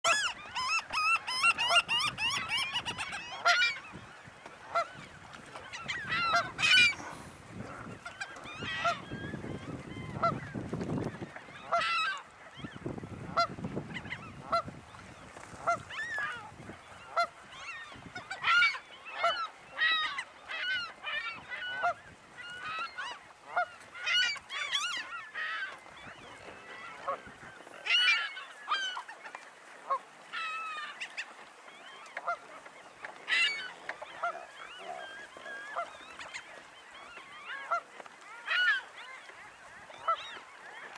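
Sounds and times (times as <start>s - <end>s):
waterbirds honking: 0.0s - 40.9s.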